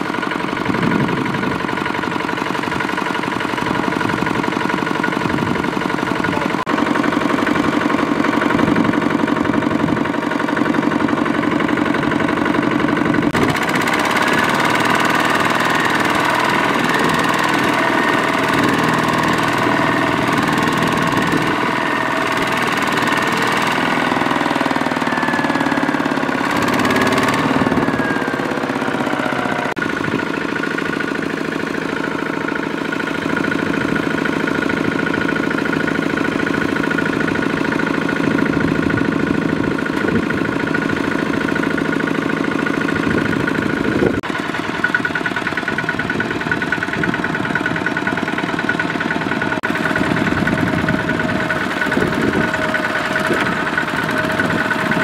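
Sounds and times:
diesel engines running: 0.0 - 55.0.

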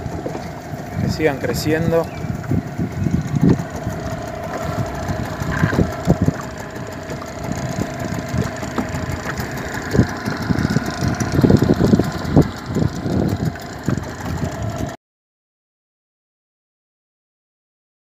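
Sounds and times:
low thumps on choppy water: 0.0 - 15.0
outboard motor running: 0.0 - 15.0.

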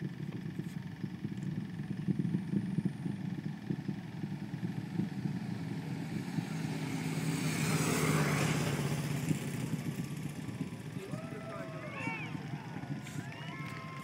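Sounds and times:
vehicle passing by: 4.5 - 14.0.

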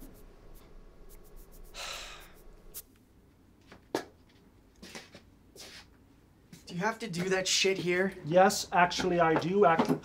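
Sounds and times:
person sighing: 1.8 - 2.4.

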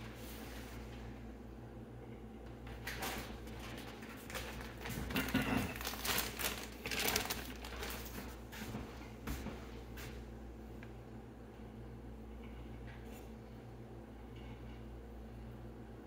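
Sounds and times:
plastic bag crinkling: 2.9 - 8.4.

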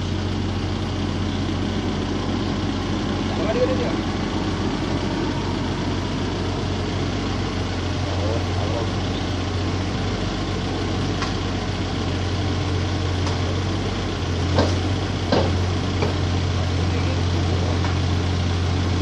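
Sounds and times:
excavator diesel engine running: 0.0 - 19.0
sharp knocks: 14.5 - 16.2.

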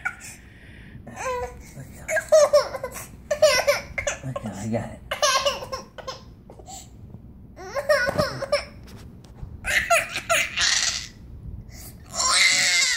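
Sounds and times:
baby crying: 9.6 - 11.2, 12.0 - 12.9.

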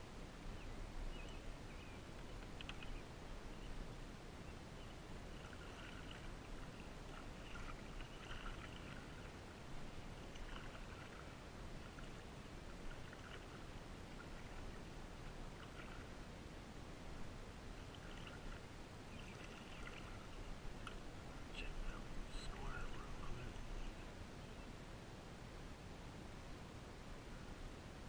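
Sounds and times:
paddle splashing in water: 5.3 - 16.2, 17.8 - 21.1.

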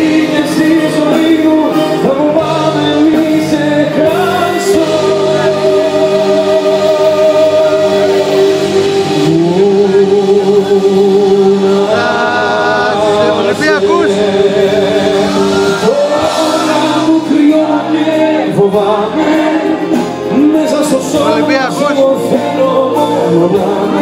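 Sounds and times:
live band playing: 0.0 - 24.0.

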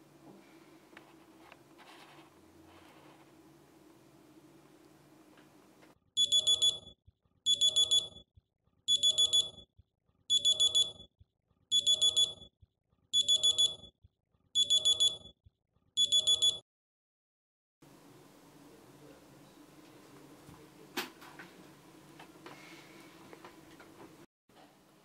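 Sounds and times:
high electronic alarm beeps: 6.2 - 8.2, 8.9 - 9.7, 10.3 - 11.1, 11.7 - 12.5, 13.2 - 13.9, 14.6 - 15.3, 16.0 - 16.6.

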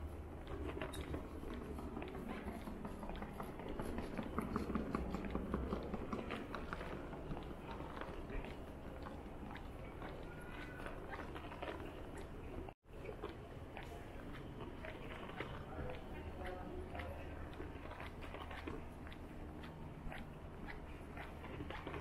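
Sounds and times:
distant voices murmuring: 0.4 - 22.0.

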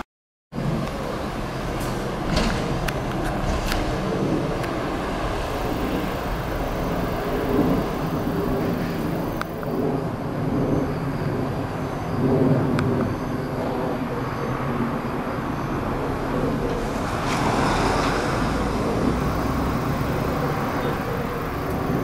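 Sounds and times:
diesel railcar engines idling: 0.6 - 9.8.

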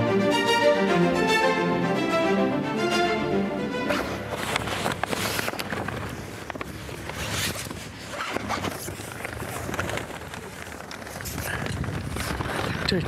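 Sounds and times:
sailcloth rustling and crinkling: 3.9 - 13.0.

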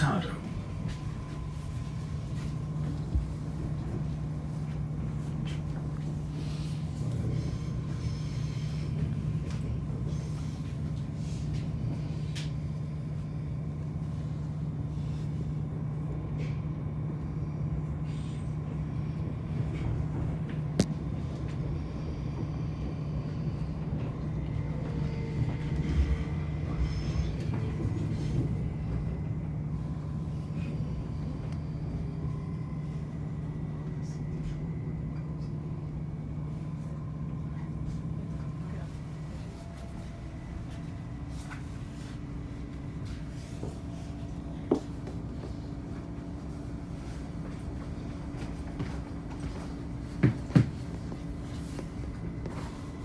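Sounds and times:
train running hum: 0.0 - 53.0.

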